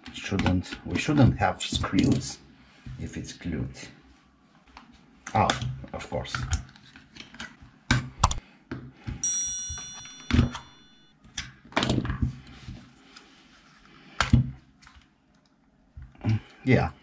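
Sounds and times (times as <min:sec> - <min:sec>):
brief metallic ring: 0:09.2 - 0:11.1.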